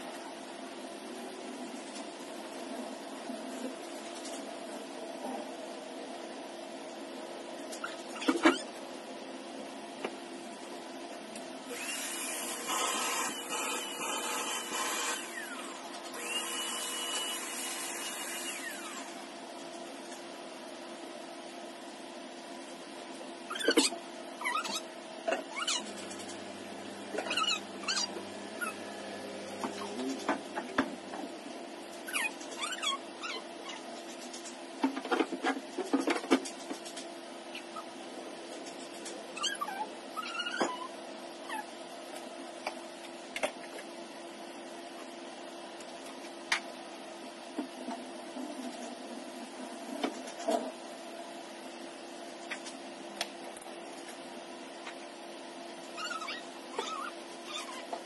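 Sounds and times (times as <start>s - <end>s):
high electric motor whine: 11.6s - 19.4s
puppy whining: 23.5s - 26.4s, 27.1s - 30.4s, 32.0s - 33.9s, 37.5s - 38.0s, 39.3s - 41.8s, 55.8s - 58.0s.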